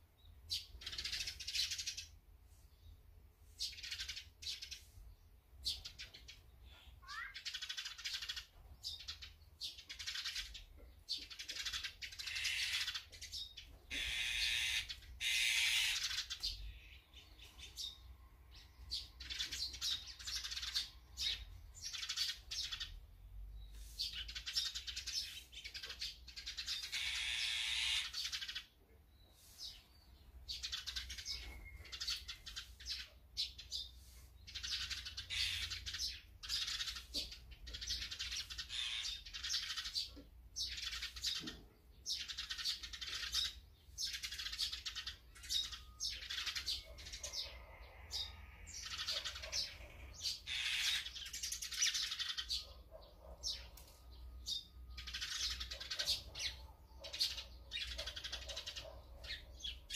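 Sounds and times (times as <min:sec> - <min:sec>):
magpies rasping calls: 0:05.6 - 0:08.5, 0:11.2 - 0:17.0, 0:24.1 - 0:28.8, 0:34.5 - 0:41.5, 0:42.1 - 0:53.8, 0:54.5 - 0:59.9.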